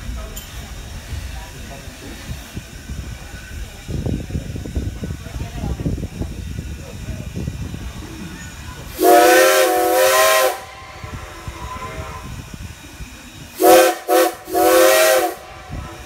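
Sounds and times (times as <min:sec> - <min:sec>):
train rumble: 0:00.0 - 0:16.0
steam whistle blasts: 0:08.9 - 0:12.5, 0:13.6 - 0:16.0.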